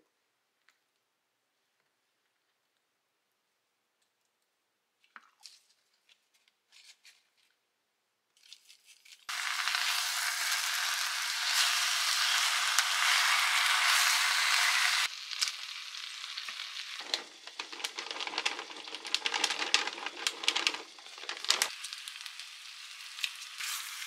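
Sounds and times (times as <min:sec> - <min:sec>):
food sizzling in hot oil: 0:09.3 - 0:24.0.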